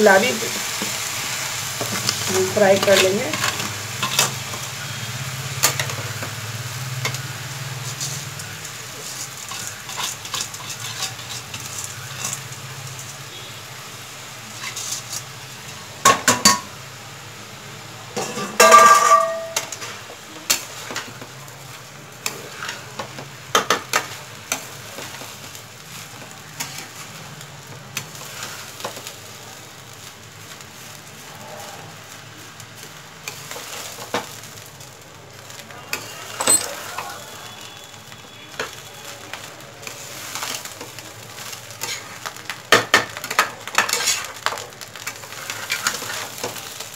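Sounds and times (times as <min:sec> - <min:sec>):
rice sizzling in pan: 0:00.0 - 0:46.9
metal utensils clanking on pan: 0:01.8 - 0:04.7, 0:05.6 - 0:06.4, 0:07.9 - 0:12.5, 0:14.6 - 0:16.7, 0:18.1 - 0:21.4, 0:22.2 - 0:25.6, 0:35.9 - 0:37.8, 0:38.5 - 0:46.9.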